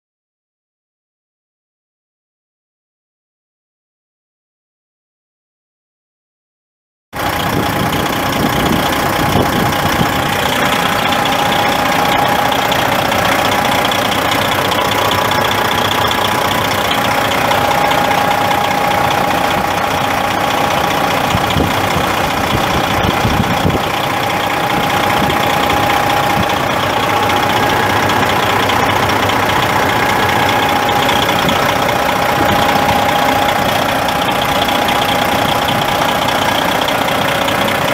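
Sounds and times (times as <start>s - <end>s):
diesel truck engine idling: 7.2s - 37.9s
thin steady whine: 8.7s - 37.9s.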